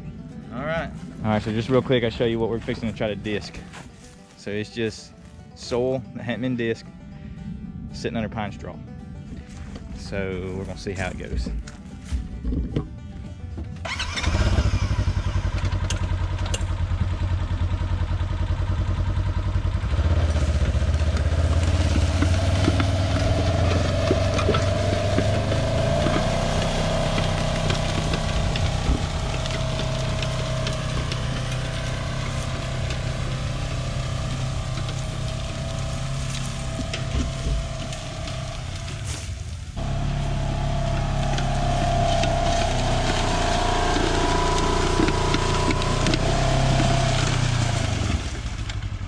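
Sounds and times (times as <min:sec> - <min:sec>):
vehicle engine under load: 0:10.8 - 0:49.0.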